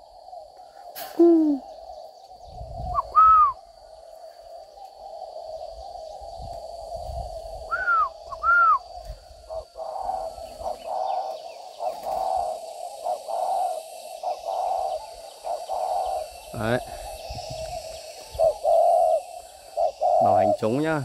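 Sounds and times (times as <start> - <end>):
doves cooing: 0.0 - 21.0
loud arching bird chirps: 1.0 - 3.7.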